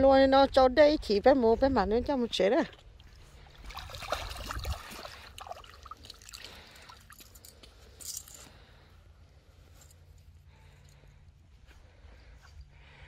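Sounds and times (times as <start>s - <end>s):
low steady rumble: 0.0s - 13.0s
splashing in shallow water: 2.8s - 7.6s.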